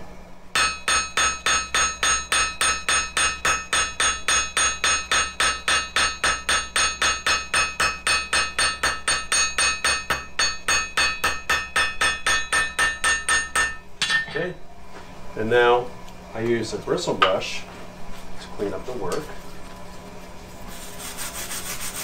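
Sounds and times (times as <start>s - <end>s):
hammer ringing on anvil: 0.5s - 14.4s.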